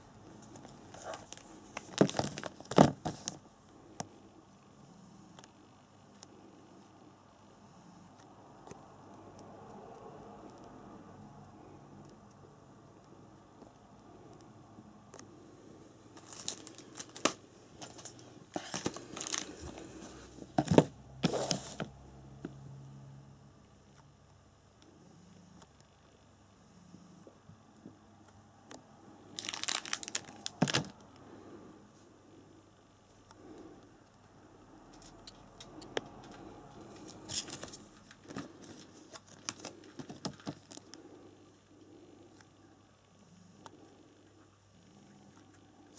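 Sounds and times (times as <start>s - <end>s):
plastic packaging crinkling: 0.4s - 3.4s, 16.2s - 20.0s, 29.3s - 31.0s, 37.0s - 40.9s.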